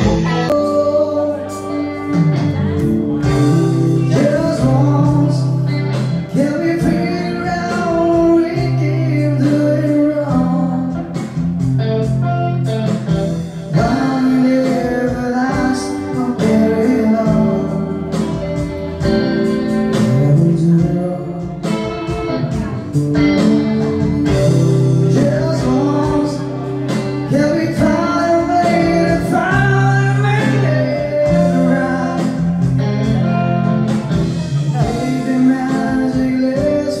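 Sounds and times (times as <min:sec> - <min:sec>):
man singing into microphone: 0:00.0 - 0:02.0, 0:03.2 - 0:11.4, 0:13.6 - 0:18.4, 0:19.9 - 0:21.8, 0:24.3 - 0:33.2, 0:34.7 - 0:37.0
guitar playing: 0:00.0 - 0:37.0
live band playing: 0:00.0 - 0:37.0.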